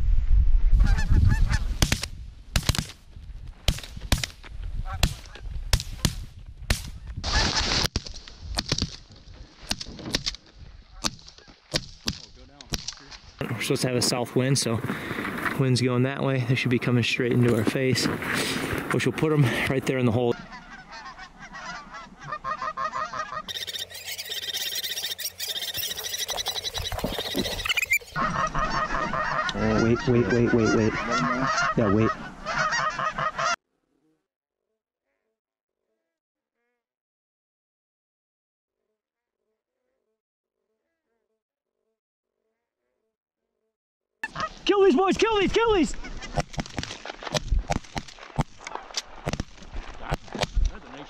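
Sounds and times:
geese honking: 0.8s - 1.7s, 19.5s - 33.6s, 44.2s - 46.4s
shotgun shots: 1.8s - 3.0s.

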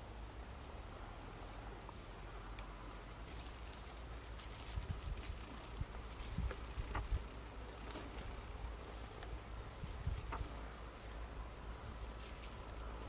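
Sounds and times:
insects trilling: 0.0s - 13.0s
rustling: 3.2s - 13.0s.

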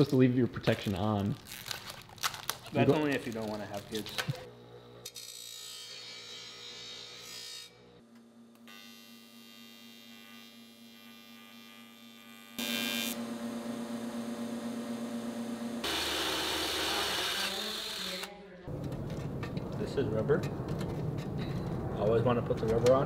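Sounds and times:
welder humming: 3.7s - 19.0s
bench grinder on metal sheet: 15.8s - 18.3s
cordless drill boring into metal: 15.8s - 18.3s.

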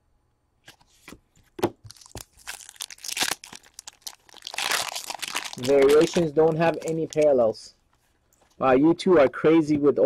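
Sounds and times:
foil wrapper crinkling and tearing: 1.9s - 7.6s.

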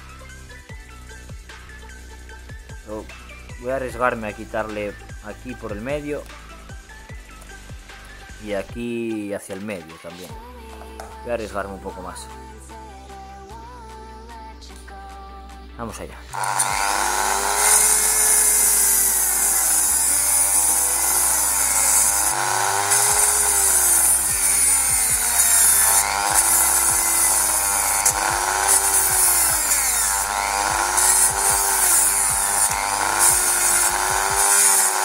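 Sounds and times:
power tool cutting plastic: 16.3s - 35.0s.

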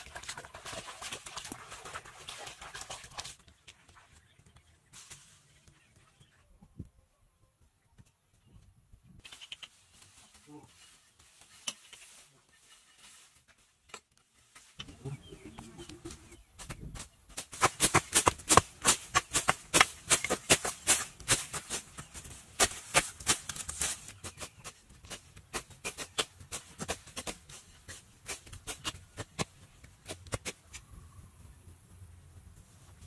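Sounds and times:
dry grass crackling and rustling: 3.1s - 5.9s, 9.2s - 14.8s, 17.1s - 29.7s.

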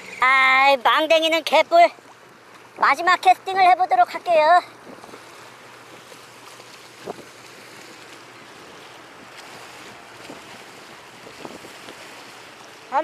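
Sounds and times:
waves washing against seawall: 0.0s - 13.0s
wind on microphone: 7.0s - 7.4s, 8.6s - 12.6s.

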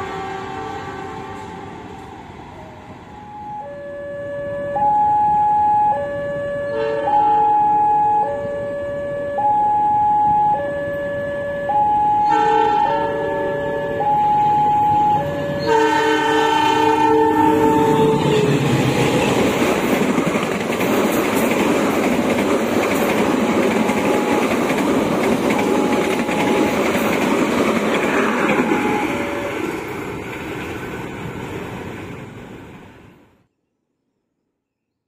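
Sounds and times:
train horn blasts: 0.0s - 2.0s, 4.7s - 8.7s, 11.7s - 18.7s
train wheels rumbling and clattering: 17.4s - 32.8s.

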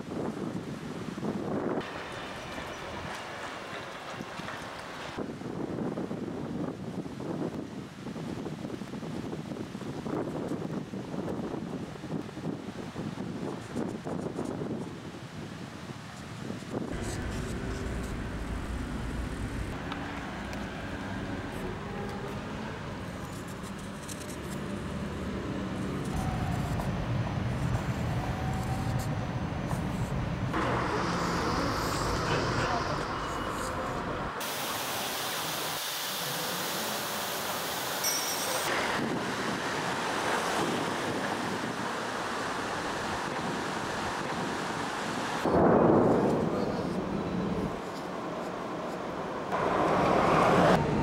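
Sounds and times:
street noise: 1.5s - 5.5s, 16.6s - 51.0s
wind buffeting microphone: 5.1s - 23.2s, 38.7s - 47.9s
traffic rumble: 16.9s - 34.8s, 45.6s - 51.0s.

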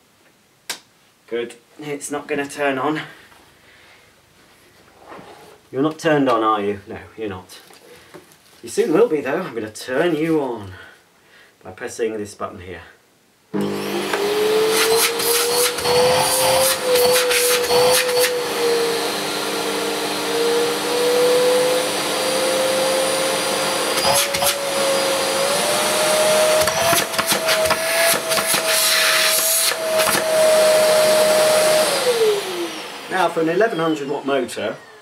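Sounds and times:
vacuum cleaner motor whine: 13.6s - 35.0s.

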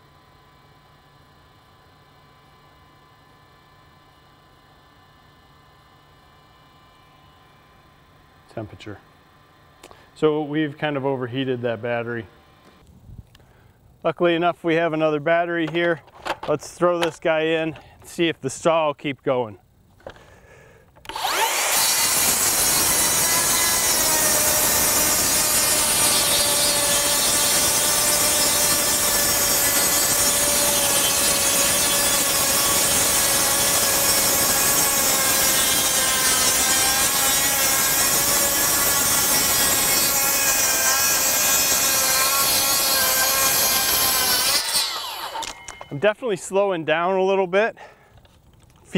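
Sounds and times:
circular saw cutting wood: 21.0s - 46.4s.

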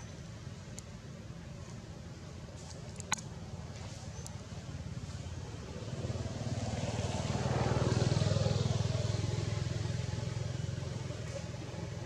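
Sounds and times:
passing vehicle engine: 4.4s - 12.0s.

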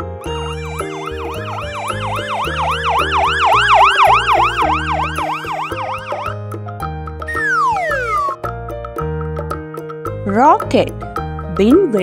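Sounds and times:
background music: 0.0s - 12.0s
ambulance siren yelping: 0.2s - 6.5s, 7.3s - 8.4s.

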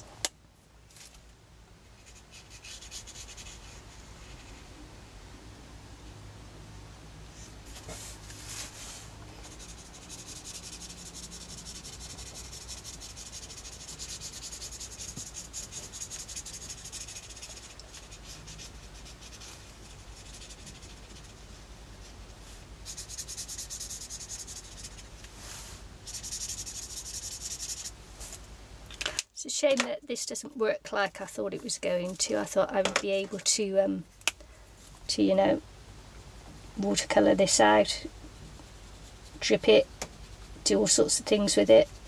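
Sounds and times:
marker scratching on paper: 2.0s - 4.7s, 9.4s - 22.2s, 22.8s - 25.2s, 26.0s - 27.9s.

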